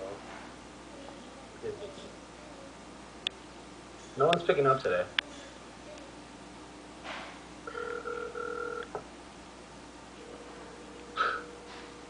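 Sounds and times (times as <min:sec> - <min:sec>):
phone ringing tone over speakerphone: 0:07.6 - 0:09.0, 0:10.2 - 0:12.0.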